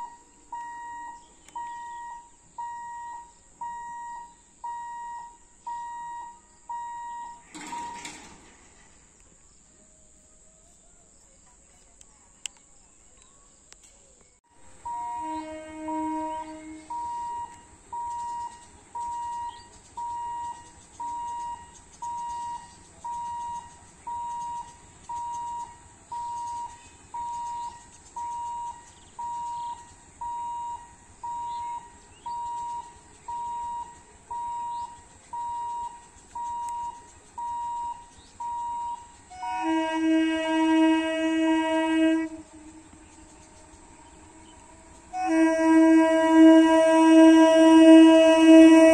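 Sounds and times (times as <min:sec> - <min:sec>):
faint bird chirps: 0:00.0 - 0:07.5, 0:08.8 - 0:40.1, 0:42.0 - 0:45.3
electronic warning beeps: 0:00.0 - 0:08.3, 0:14.8 - 0:39.3
low steady tone: 0:00.0 - 0:08.3, 0:14.5 - 0:48.9.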